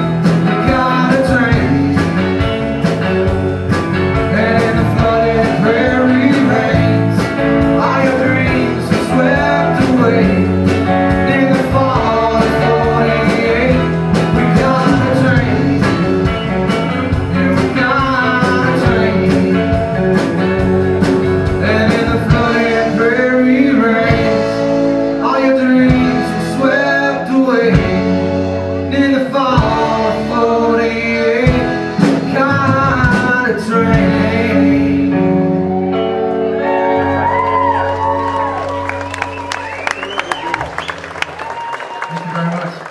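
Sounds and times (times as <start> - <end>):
drum kit: 0.0 - 35.6
acoustic and electric guitars: 0.0 - 42.9
person singing: 0.4 - 2.5, 4.1 - 20.3, 21.4 - 35.6.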